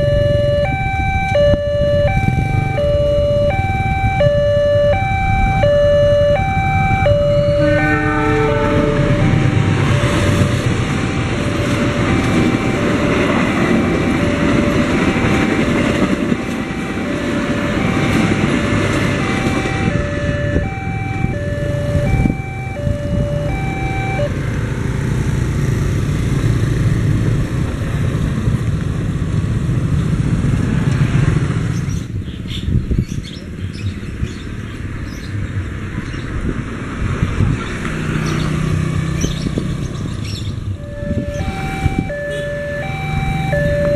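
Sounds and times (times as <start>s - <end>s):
two-tone crossing alarm: 0.0s - 24.4s, 40.7s - 43.9s
motorcycle engines: 0.0s - 43.9s
train rumbling past: 6.3s - 32.2s, 38.0s - 43.9s.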